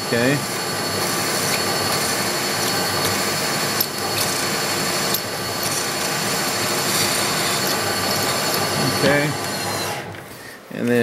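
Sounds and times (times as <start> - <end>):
drill cutting into metal: 0.0 - 10.2.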